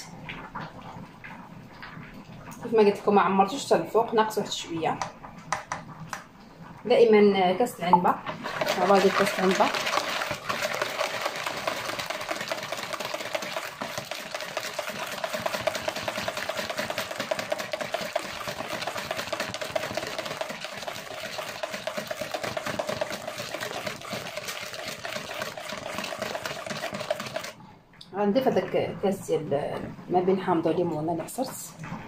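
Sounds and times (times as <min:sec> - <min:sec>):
whisk beating batter in bowl: 0:08.3 - 0:27.6.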